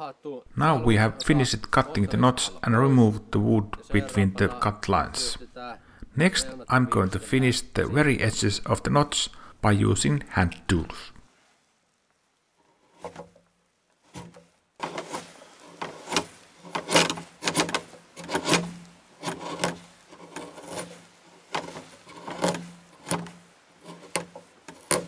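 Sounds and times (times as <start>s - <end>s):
steel tool scraping wood: 12.6s - 25.0s.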